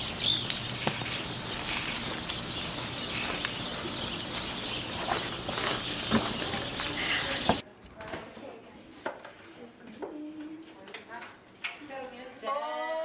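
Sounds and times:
birds chirping: 0.0 - 7.6.

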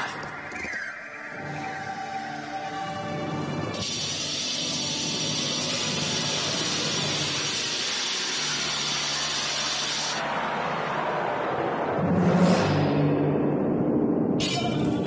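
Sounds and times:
hissing magic energy effect: 3.8 - 10.2.

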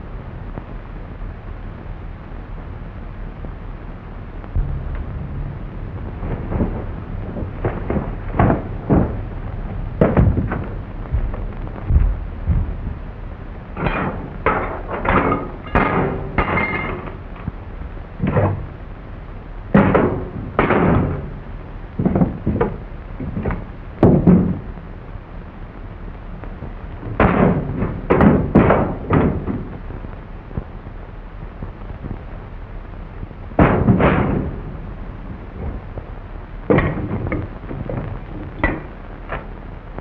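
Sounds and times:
steady hiss: 0.0 - 40.0
pots and crockery clattering: 13.8 - 17.2.

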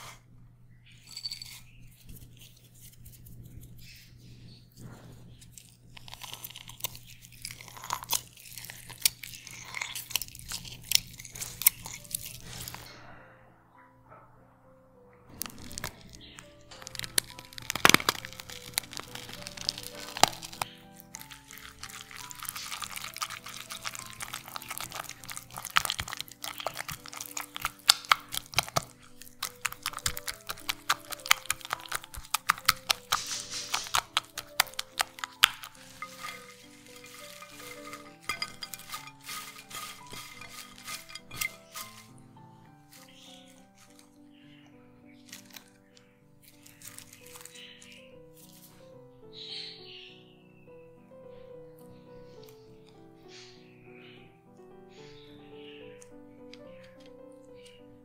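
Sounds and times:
soft background music: 0.0 - 58.0
lime rind crackling: 5.1 - 12.9, 15.3 - 48.9, 55.8 - 58.0
parsley rustling into bowl: 5.4 - 12.9, 15.3 - 44.2, 45.2 - 48.8
juice dripping on leaves: 5.5 - 12.9, 15.3 - 44.4, 45.0 - 48.8
spatula mixing sticky sauce: 15.3 - 42.2
spatula tapping glass bowl: 29.6 - 42.1.

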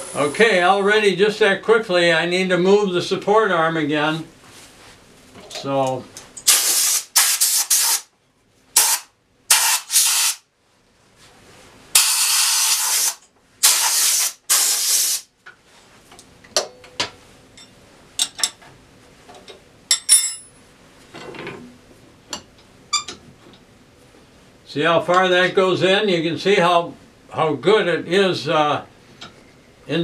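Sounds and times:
air blowgun hissing blasts: 6.5 - 8.0, 12.0 - 15.3.

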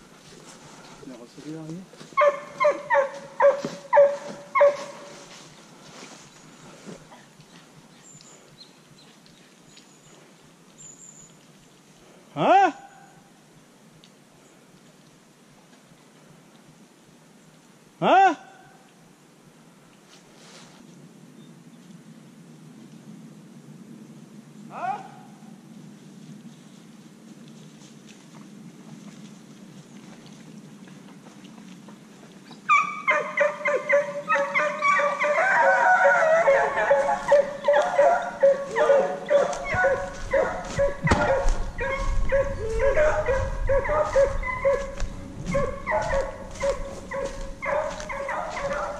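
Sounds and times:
dogs baying and yelping: 2.2 - 5.2, 32.5 - 48.9.

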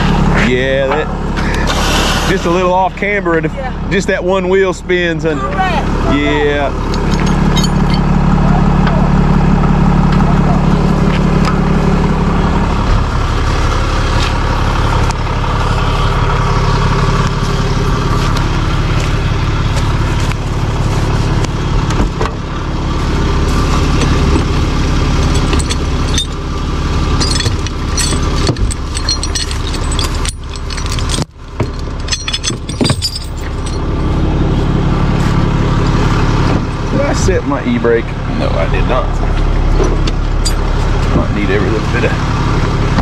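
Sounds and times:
truck engine idling: 0.0 - 43.0
chains and tools clinking: 6.8 - 8.3, 24.0 - 34.0, 40.4 - 40.6.

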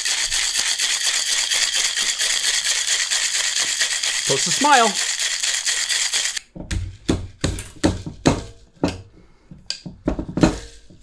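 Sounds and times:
ice rattling in shaker tin: 0.0 - 6.4.

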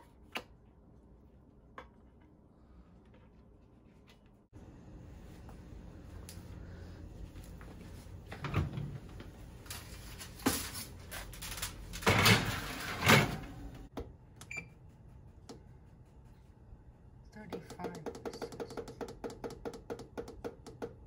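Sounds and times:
oven timer beep: 14.4 - 14.8.

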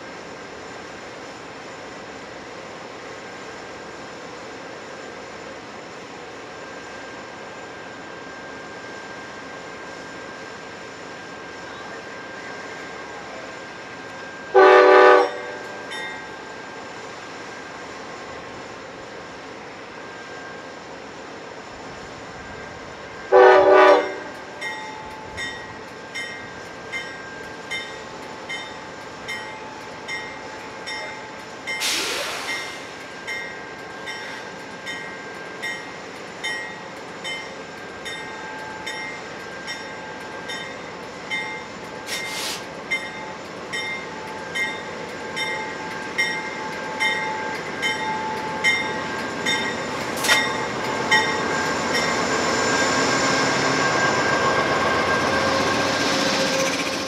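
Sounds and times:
train bell ringing: 0.0 - 57.0
locomotive horn blast: 14.5 - 15.5, 23.3 - 24.4.

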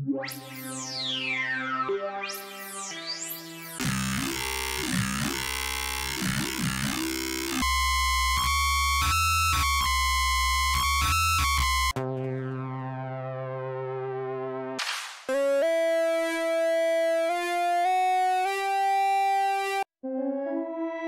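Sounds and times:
wobbling growl bass: 3.8 - 13.1
choppy distorted bass: 3.8 - 14.0.

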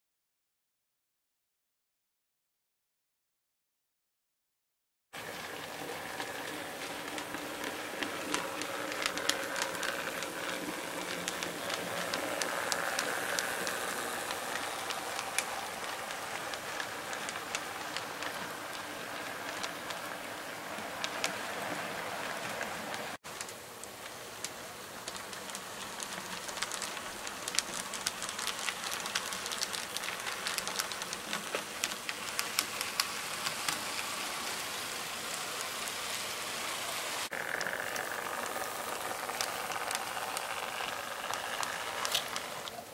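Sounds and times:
wheels clicking on rails: 5.2 - 42.9
model train motor humming: 5.4 - 42.9.

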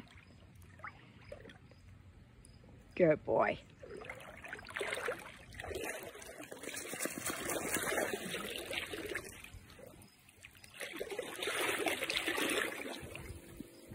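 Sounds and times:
dog splashing in water: 3.8 - 13.5.

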